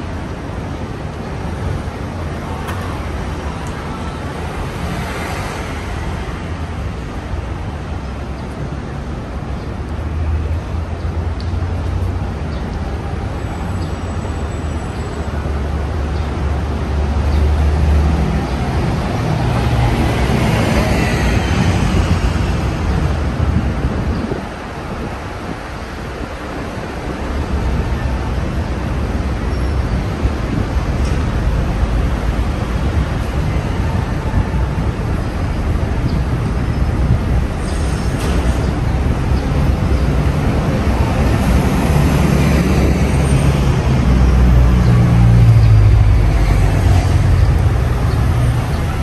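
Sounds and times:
city traffic noise: 0.0s - 49.0s
deep vehicle rumble: 27.1s - 49.0s.

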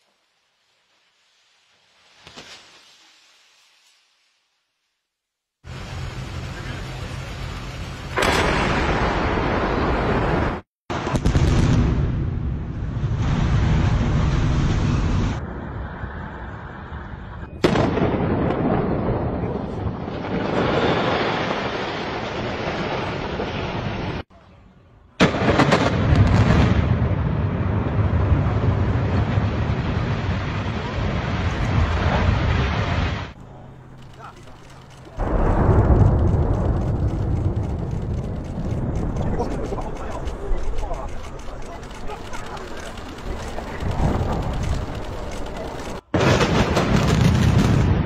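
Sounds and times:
structure collapsing rumble: 5.7s - 24.2s, 25.2s - 33.4s, 34.0s - 48.0s
explosive charges going off: 8.0s - 15.5s.

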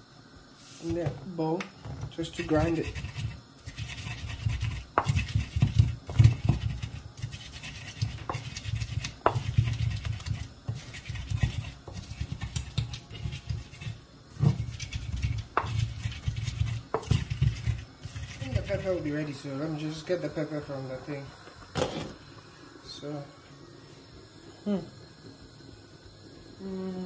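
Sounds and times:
wooden pestle grinding onions: 2.2s - 19.6s.

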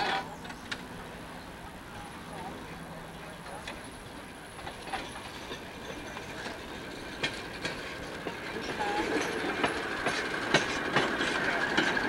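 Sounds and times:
metal clanks of wheels on rails: 0.0s - 0.9s, 3.4s - 12.0s.

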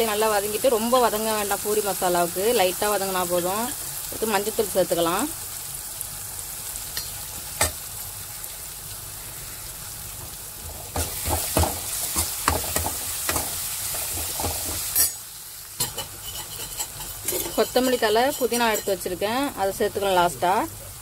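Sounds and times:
vegetables sizzling in hot oil: 0.0s - 21.0s
metal ladle scraping a pan: 15.8s - 19.0s.

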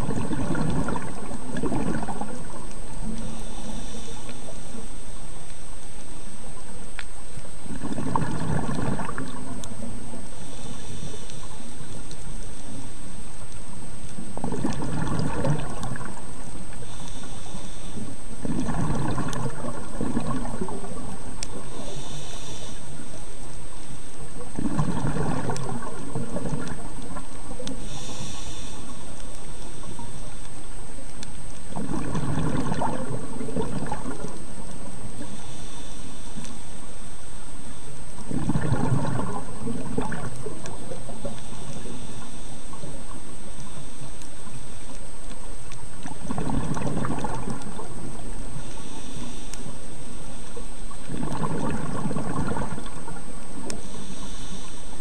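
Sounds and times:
exhaled air bubbling: 0.0s - 55.0s
regulator inhale hiss: 3.0s - 5.6s, 10.2s - 13.1s, 16.7s - 18.4s, 21.4s - 24.1s, 27.6s - 30.4s, 35.2s - 38.0s, 41.1s - 44.8s, 48.4s - 50.6s, 53.7s - 55.0s.

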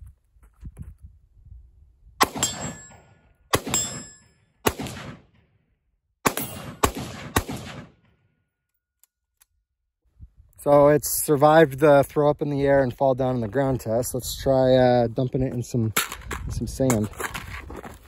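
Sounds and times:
rifle shots: 2.2s - 5.4s, 6.2s - 8.2s.

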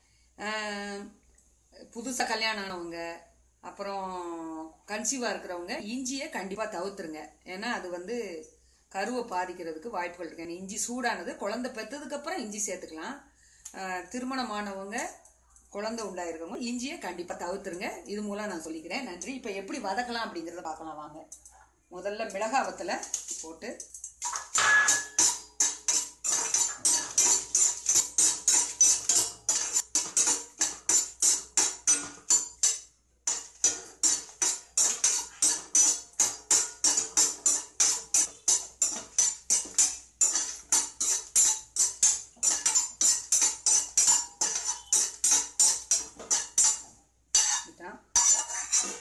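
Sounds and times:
metal spoon scraping a pan: 22.2s - 49.0s
pan ringing: 24.5s - 25.4s.

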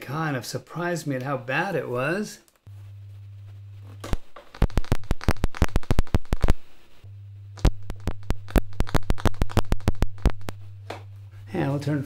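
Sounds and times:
sharp pops and crackles: 4.0s - 6.7s, 7.5s - 11.1s
steady low test tone: 7.0s - 12.0s.

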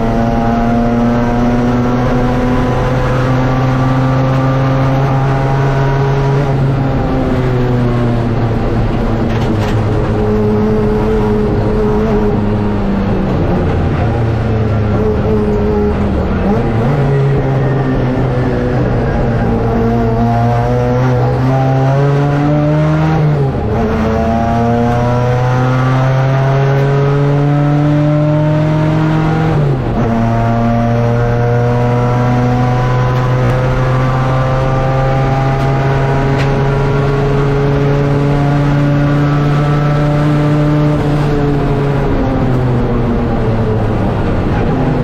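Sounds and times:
race car engine revving: 0.0s - 45.0s.

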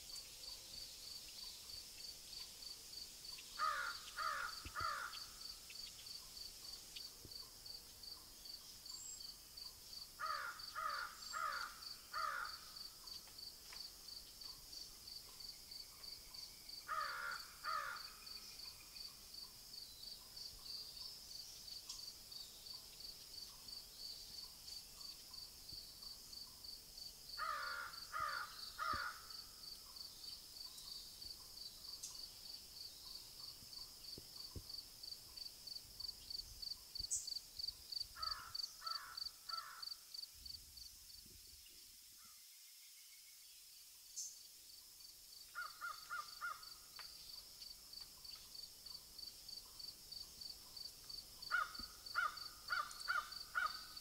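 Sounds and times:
bird calling: 51.5s - 54.0s.

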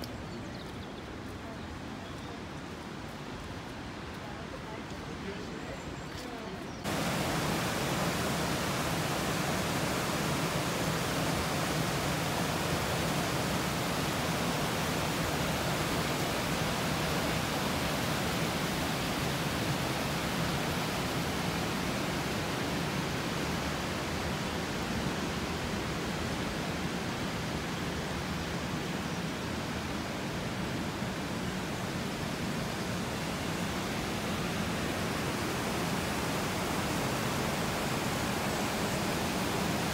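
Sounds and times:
river water rushing over rocks: 6.9s - 39.9s.

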